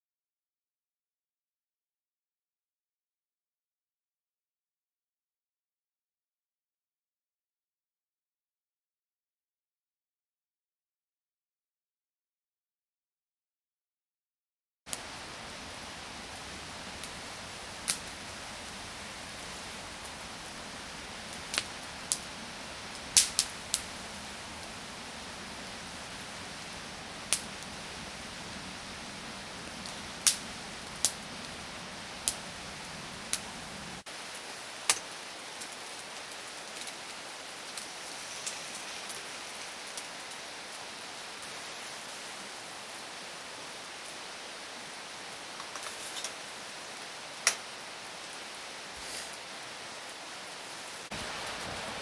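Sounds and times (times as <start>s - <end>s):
wood fire crackling: 14.9s - 52.0s.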